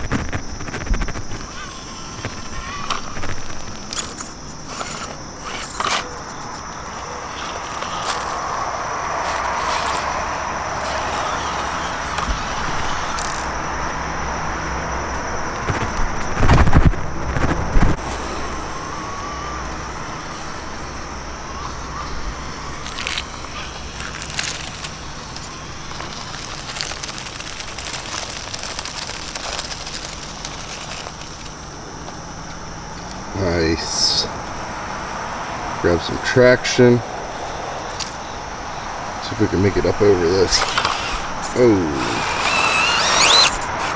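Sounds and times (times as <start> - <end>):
toy car motor whirring: 0.0 - 13.6, 21.5 - 31.6, 39.6 - 43.9
tyres crunching on rock: 22.8 - 32.2, 40.1 - 43.9.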